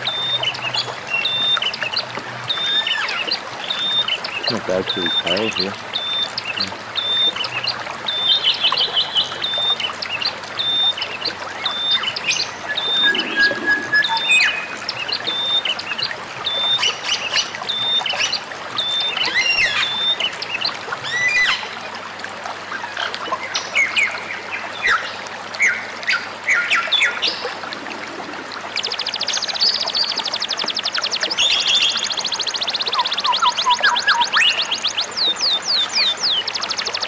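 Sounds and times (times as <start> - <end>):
birds chirping: 0.0 - 21.7, 28.0 - 37.0
running water: 0.0 - 37.0
high whistled bird notes: 11.7 - 15.5.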